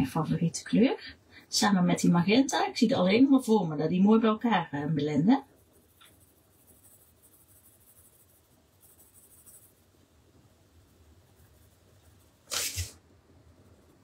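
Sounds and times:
pencil scratching on paper: 5.4s - 10.0s, 10.8s - 13.0s.

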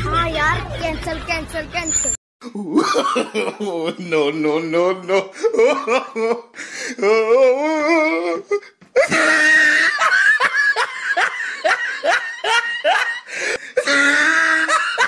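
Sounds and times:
person laughing heartily: 2.4s - 15.0s.

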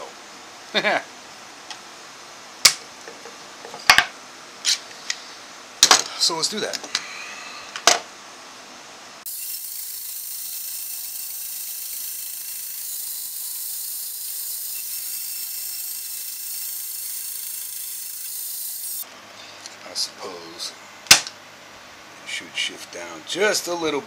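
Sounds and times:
bandsaw cutting wood: 9.3s - 19.0s.

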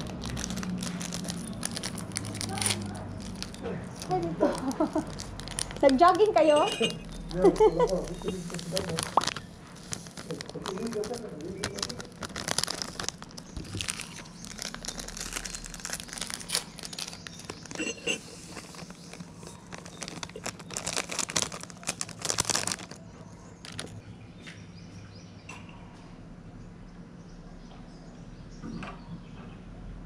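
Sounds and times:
packaging sachets crinkling: 0.0s - 24.0s.

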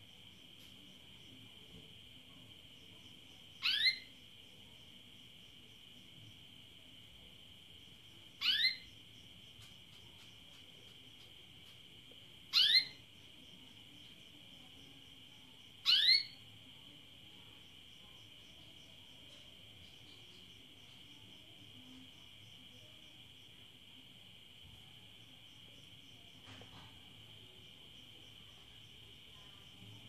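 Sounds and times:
canary call notes: 3.6s - 4.1s, 8.4s - 8.9s, 12.5s - 13.0s, 15.8s - 16.4s.

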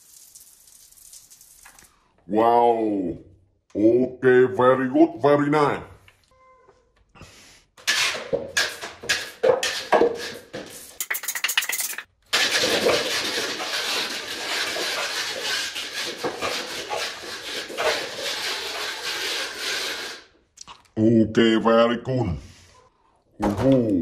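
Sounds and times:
paper cups rattling and tumbling: 7.8s - 20.1s.

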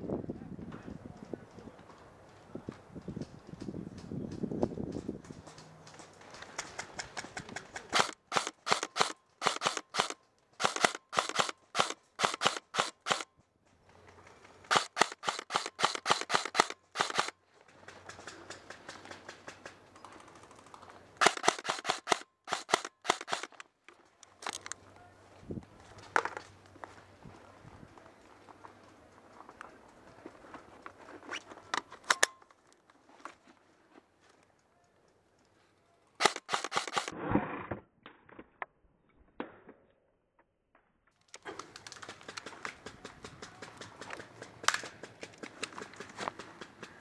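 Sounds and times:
airsoft guns firing rapid bursts: 7.8s - 13.2s, 14.7s - 17.3s, 21.2s - 23.5s, 36.2s - 37.1s.

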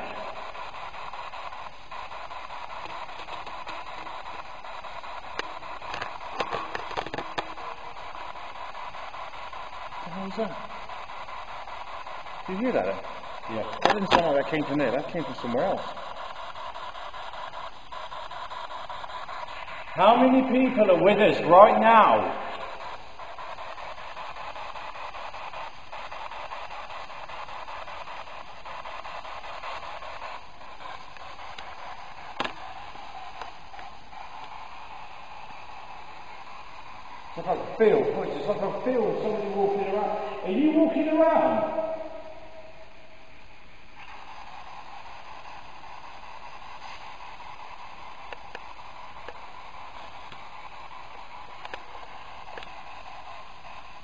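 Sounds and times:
fluttering radio static: 0.0s - 54.0s.

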